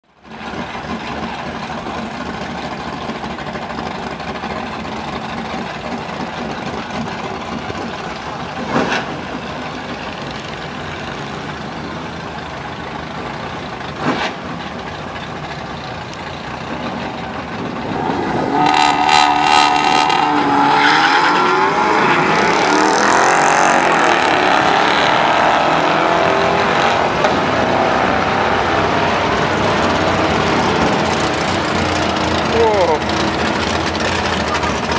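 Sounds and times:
car engines idling: 0:00.0 - 0:34.9
racing car engines revving hard: 0:16.8 - 0:34.9.

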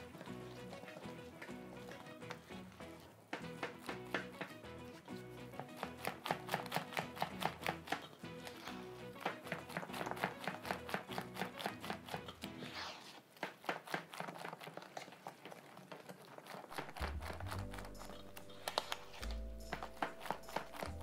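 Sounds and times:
whisk clicking against metal bowl: 0:05.6 - 0:08.2, 0:09.2 - 0:12.4.

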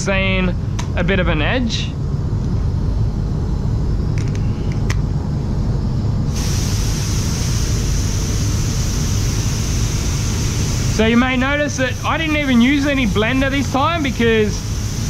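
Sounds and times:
spray booth fans rumbling: 0:00.0 - 0:15.0
compressed air hissing: 0:06.3 - 0:15.0.

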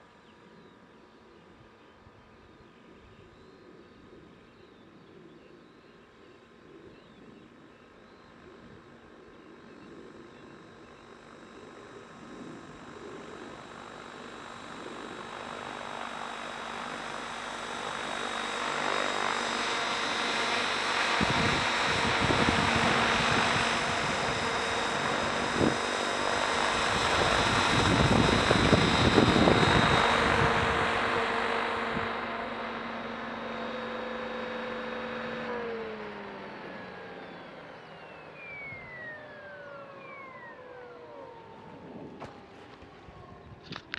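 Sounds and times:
rc helicopter rotor whine: 0:00.0 - 0:43.9
wind buffeting microphone: 0:21.1 - 0:32.2.

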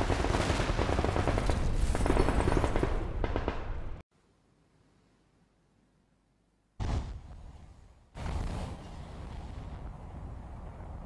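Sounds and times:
rapid machine-gun fire: 0:00.0 - 0:03.8.

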